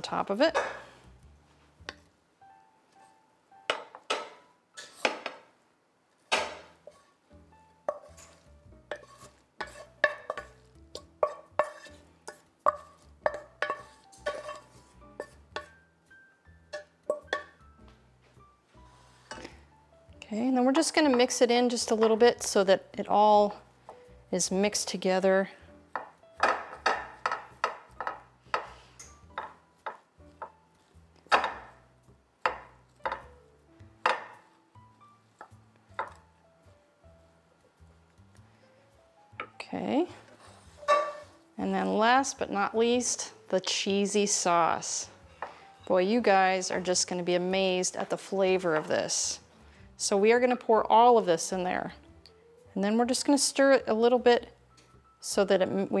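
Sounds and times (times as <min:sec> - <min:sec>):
spatula knocking on metal pan: 0:03.7 - 0:04.4, 0:08.9 - 0:14.6, 0:16.7 - 0:17.6, 0:25.9 - 0:30.6, 0:32.4 - 0:33.3, 0:34.0 - 0:34.4
wooden spatula tapping glass dish: 0:11.2 - 0:14.6, 0:35.4 - 0:36.2.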